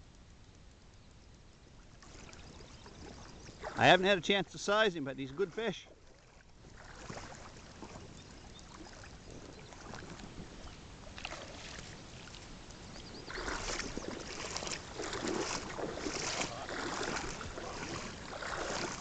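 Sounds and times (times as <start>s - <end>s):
river water: 0.9s - 19.0s
wind buffeting microphone: 6.6s - 19.0s.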